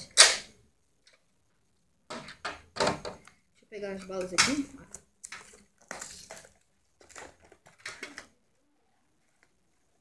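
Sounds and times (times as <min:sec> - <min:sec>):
cardboard box and plastic rustling: 0:05.3 - 0:08.4.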